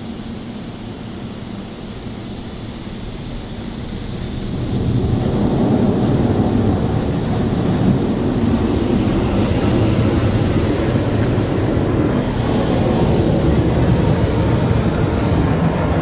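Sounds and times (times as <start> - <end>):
high-pressure water jets spraying: 4.2 - 16.0.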